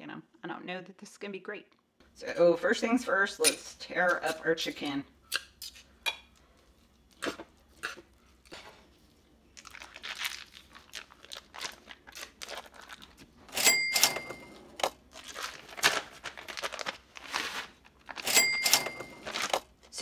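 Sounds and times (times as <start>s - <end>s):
foil wrapper crinkling and tearing: 9.5s - 13.4s, 15.0s - 18.3s, 19.2s - 19.7s
cash register ding: 13.5s - 14.8s, 18.2s - 19.5s.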